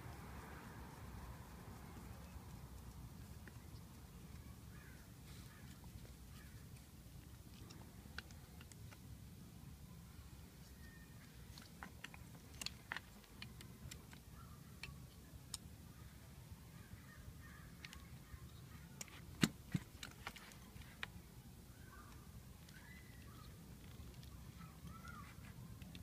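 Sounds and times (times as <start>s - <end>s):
faint bird calls: 3.2s - 6.8s, 21.7s - 25.9s.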